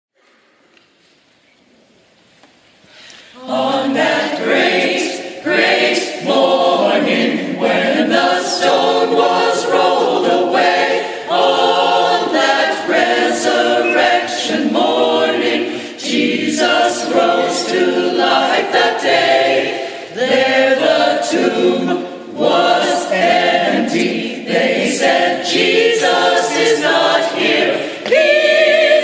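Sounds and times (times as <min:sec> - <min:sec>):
church choir singing: 0:03.4 - 0:29.0.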